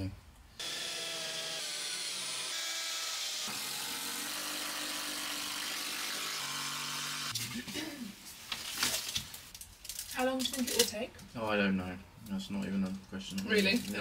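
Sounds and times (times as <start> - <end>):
cordless drill drilling wood: 0.6 - 7.4.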